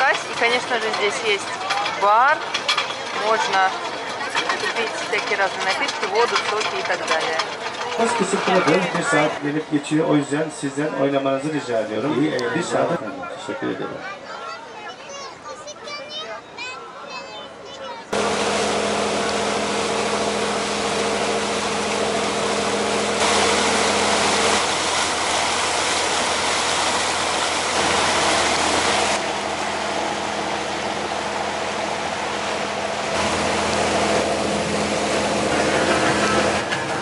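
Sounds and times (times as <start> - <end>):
boat engine drone: 0.0 - 13.0, 18.2 - 37.0
rush of wind and water: 23.2 - 37.0.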